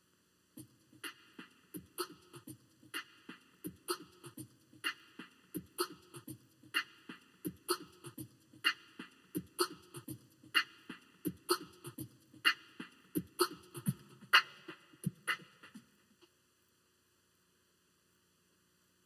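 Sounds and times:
drum beat: 0.6 - 15.8.

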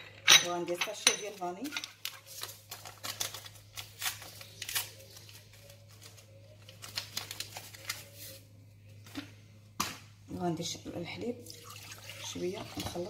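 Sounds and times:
paper sachet rustling: 2.0 - 8.5.

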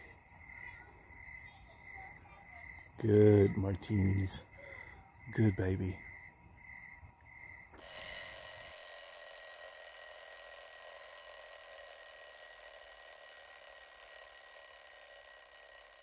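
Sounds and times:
alarm clock ringing: 7.8 - 16.0.

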